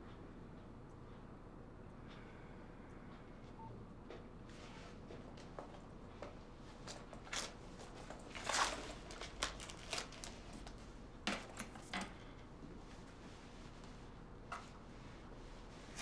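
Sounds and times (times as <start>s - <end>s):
clothing and bag rustling: 5.4s - 11.9s.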